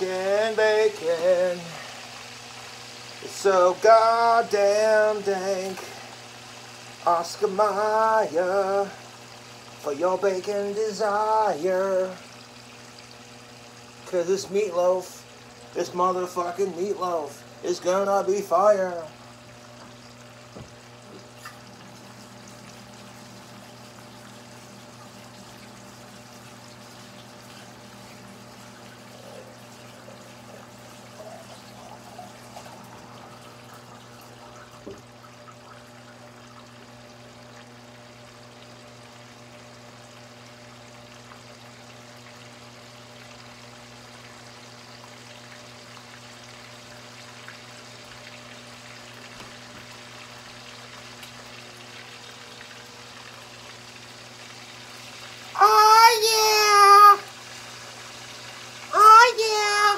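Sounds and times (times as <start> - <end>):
steady low hum: 0.0 - 42.6
bacon sizzling in a frying pan: 0.0 - 59.9.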